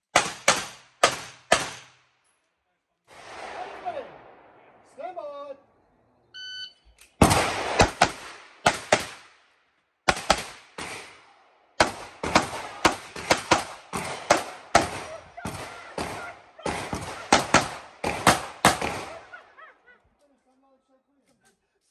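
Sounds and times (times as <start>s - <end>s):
pistol shots with echo: 0.0s - 2.0s, 7.2s - 9.4s, 10.1s - 19.6s.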